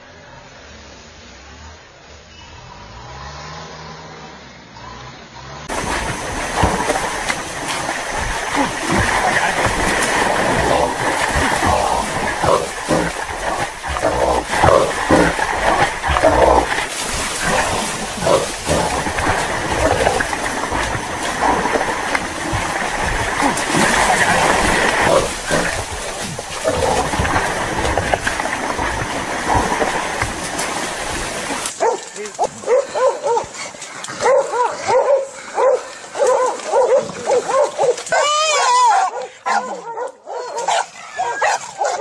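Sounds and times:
noisy struggle: 5.6 - 34.4
dogs barking and growling: 5.7 - 42.0.

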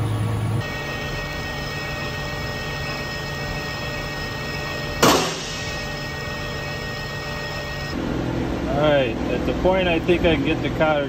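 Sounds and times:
loud metal scrape: 0.6 - 8.0
metal lathe whining: 0.6 - 8.0.

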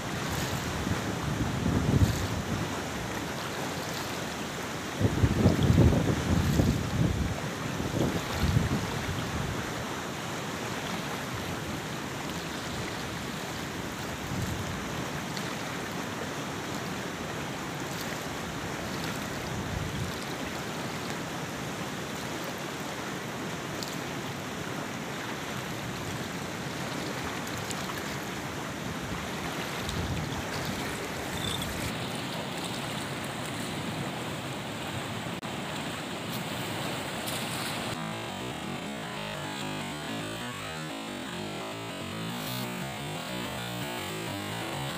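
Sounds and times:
flowing river water: 0.0 - 44.9
wind buffeting microphone: 5.0 - 9.6, 29.0 - 32.0.

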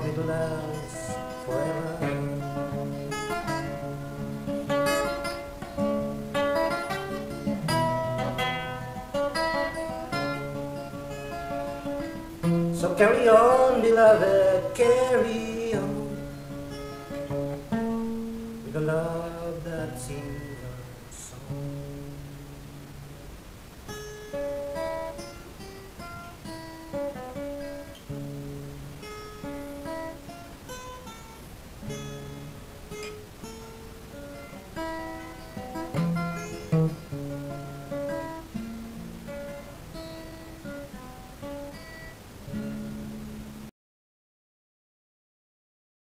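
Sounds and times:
acoustic guitar playing: 0.0 - 43.7.

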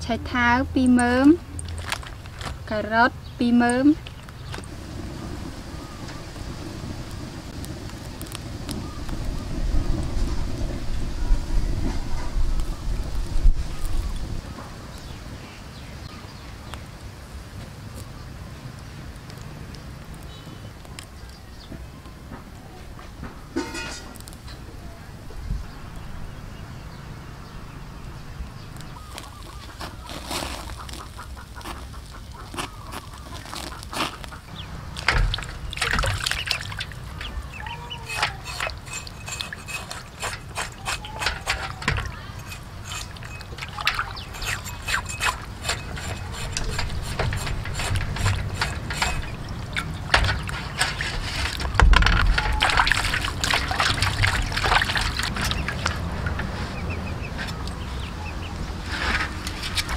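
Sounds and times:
fire crackling: 1.2 - 2.7, 4.0 - 21.4, 23.5 - 24.6, 28.5 - 56.7
water splashing in metal basin: 34.9 - 56.5.

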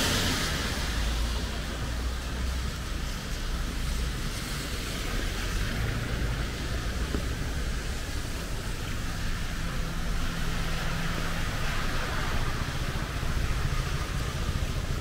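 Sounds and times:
road traffic hiss and rumble: 0.0 - 15.0.

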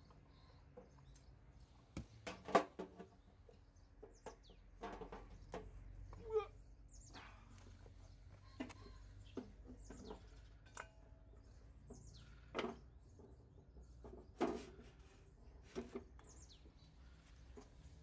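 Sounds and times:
bird chirps: 6.0 - 10.7, 15.0 - 17.7.

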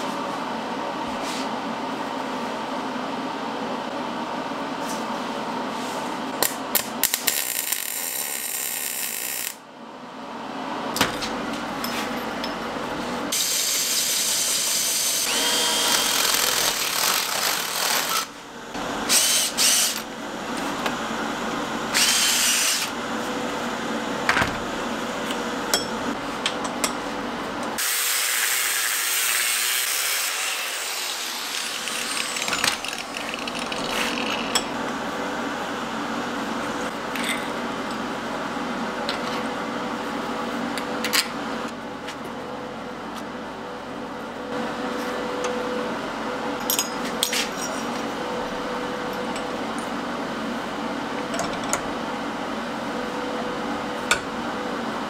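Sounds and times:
power tool on steel: 13.3 - 18.3, 21.9 - 22.9, 27.8 - 34.2.

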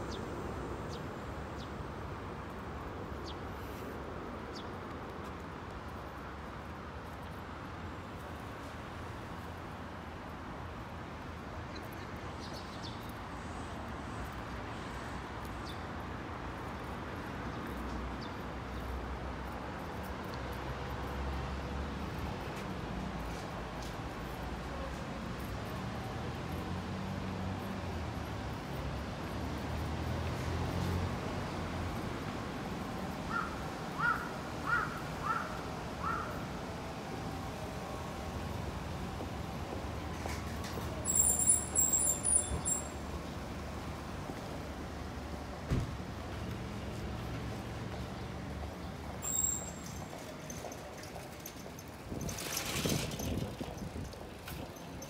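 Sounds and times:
railway station background noise: 0.0 - 55.0
bird calling: 49.2 - 49.9.

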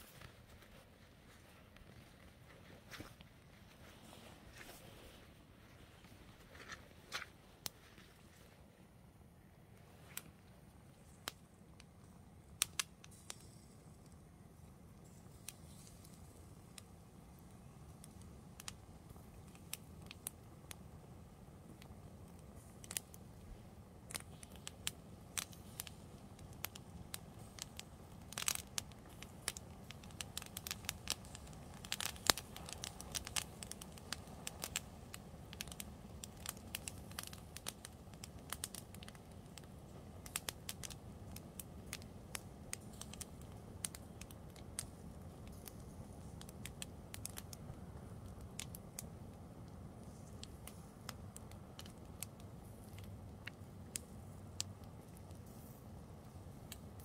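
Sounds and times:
fire crackling and popping: 0.0 - 57.0.

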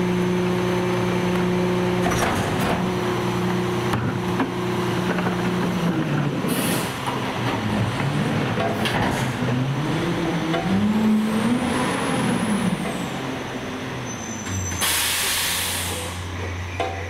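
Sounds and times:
garbage truck whining: 0.0 - 17.0
air brake hiss: 6.5 - 7.0, 14.5 - 16.2.

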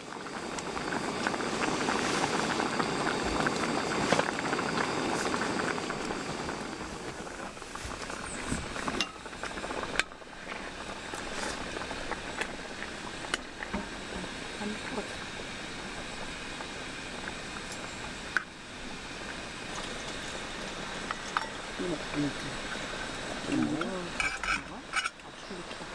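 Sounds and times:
pot boiling with dense bubbling: 0.0 - 25.9
utensils clinking against pot: 21.1 - 21.6, 23.5 - 25.3.

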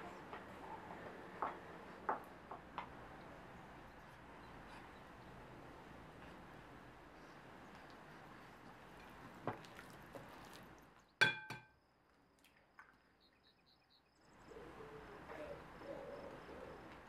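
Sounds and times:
clink against ceramic bowl: 11.2 - 11.7.

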